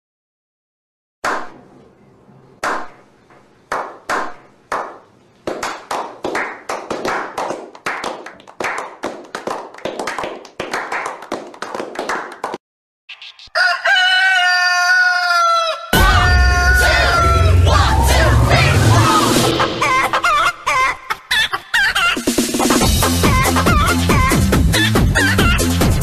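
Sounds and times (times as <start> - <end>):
people clapping: 3.7 - 12.6.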